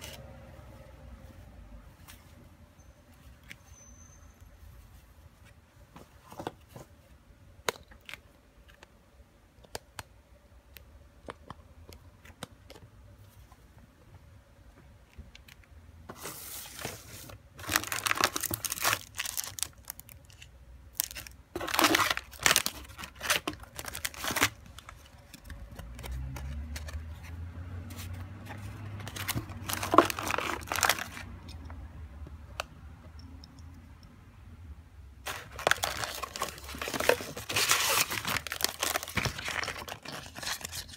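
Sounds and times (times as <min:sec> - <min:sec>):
plastic wrapping crinkling: 0:16.2 - 0:27.2, 0:27.9 - 0:31.3, 0:35.2 - 0:40.9.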